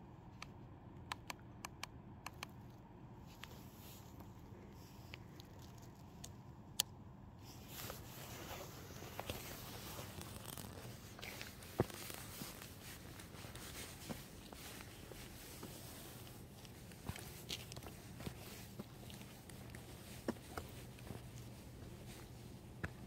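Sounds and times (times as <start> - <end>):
handling clicks and rustles: 0.2 - 23.0.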